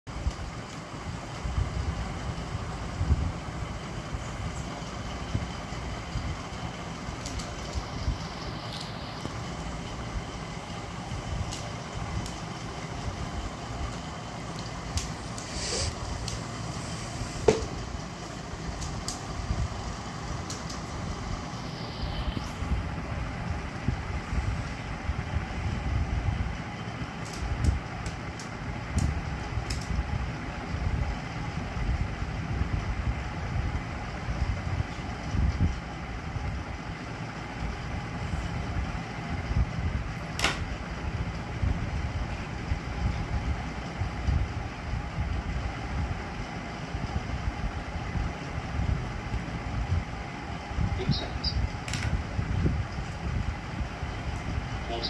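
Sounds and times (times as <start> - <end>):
low background rumble: 0.0 - 55.0
sharp click: 40.4 - 40.6.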